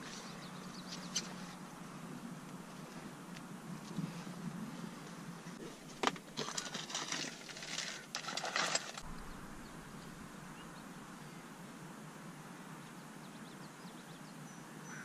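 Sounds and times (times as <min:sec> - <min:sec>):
low steady rumble: 0:00.0 - 0:14.6
gear clattering and rustling: 0:05.6 - 0:09.1.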